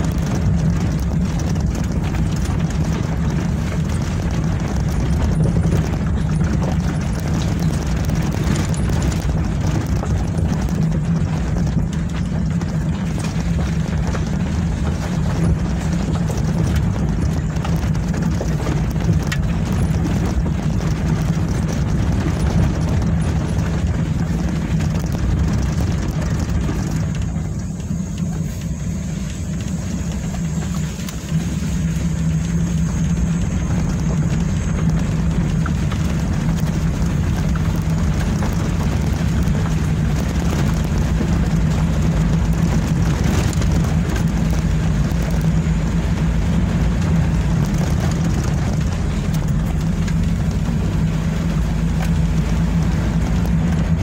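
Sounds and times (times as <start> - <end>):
car engine hum: 0.0 - 54.0
road and tyre noise: 0.0 - 54.0.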